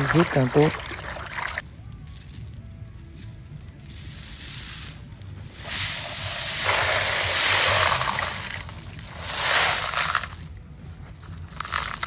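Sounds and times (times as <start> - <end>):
water splashing: 0.0 - 1.6, 5.6 - 10.4
snail shells rattling: 1.8 - 12.0.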